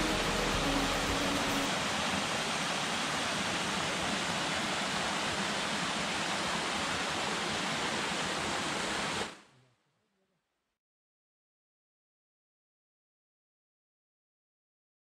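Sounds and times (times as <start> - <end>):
stream cascading over rocks: 0.0 - 9.4.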